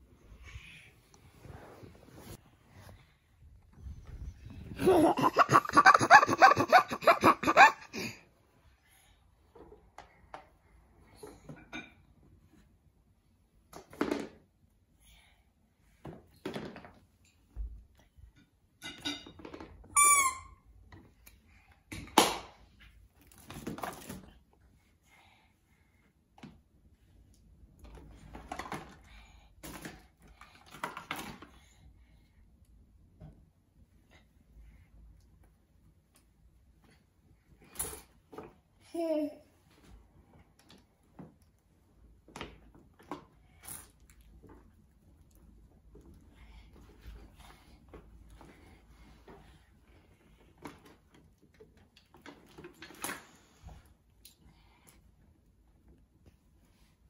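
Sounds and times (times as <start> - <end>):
toys clattering in a basket: 28.2 - 31.6.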